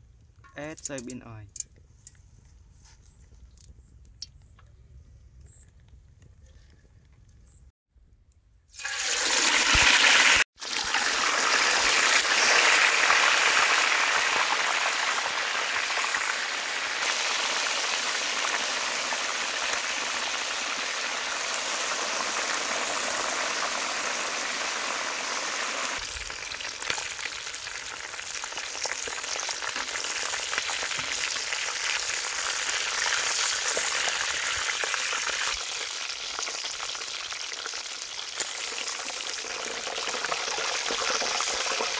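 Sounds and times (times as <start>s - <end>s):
oil sizzling and bubbling: 8.7s - 41.9s.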